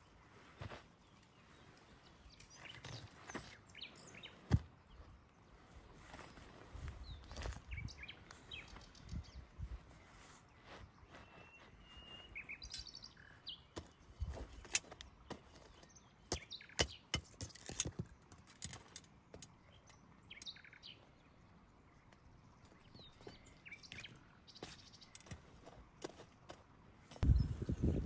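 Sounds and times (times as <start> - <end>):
birds chirping: 0.0 - 28.0
sharp clicks and knocks: 16.3 - 20.5.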